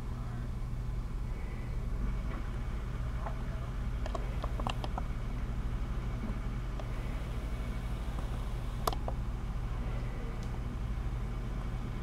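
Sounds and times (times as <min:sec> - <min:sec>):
muffled truck engines idling: 0:00.0 - 0:12.0.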